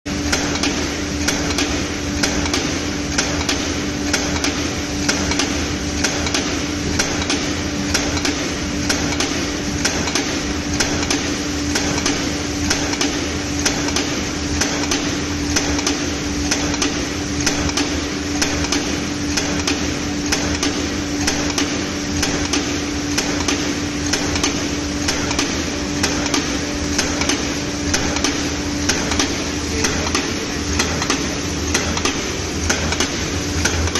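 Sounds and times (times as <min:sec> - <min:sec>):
machine hum: 0:00.1 - 0:33.9
press stamping strokes: 0:00.1 - 0:33.9.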